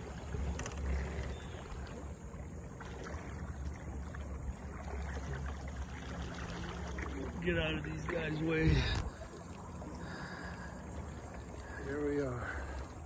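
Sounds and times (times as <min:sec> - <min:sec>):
water splashing along boat hull: 0:00.0 - 0:13.0.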